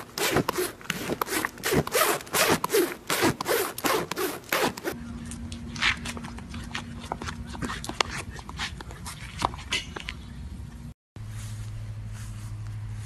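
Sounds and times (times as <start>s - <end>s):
horse muzzle rasping on clothing: 0.0s - 5.0s
low steady hum: 0.0s - 13.0s.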